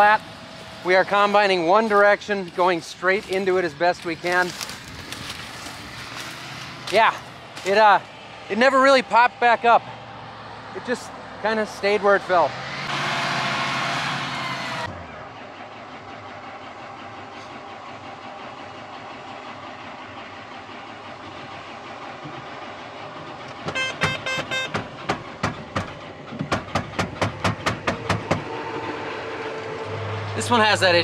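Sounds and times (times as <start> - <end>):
combine harvester running: 0.0 - 31.0
outdoor noise: 0.0 - 31.0.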